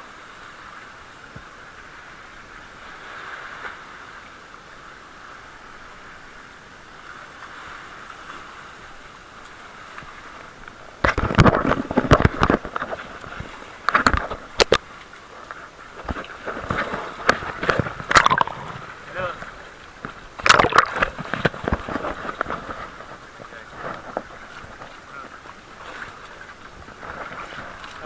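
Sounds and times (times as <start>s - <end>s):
water splashing and churning: 0.0s - 28.0s
seawater rushing through rocks: 11.0s - 28.0s.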